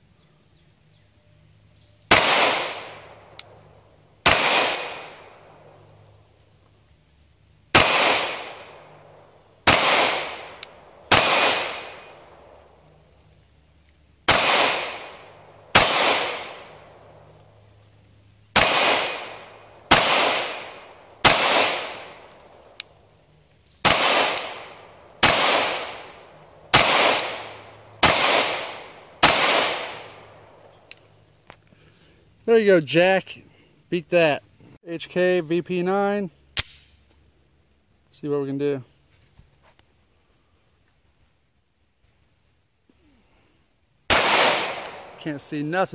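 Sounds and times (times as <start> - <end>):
pistol shots with echo: 2.1 - 3.6, 4.2 - 5.8, 7.7 - 12.6, 14.3 - 17.2, 18.5 - 22.8, 23.8 - 30.5, 44.1 - 45.4.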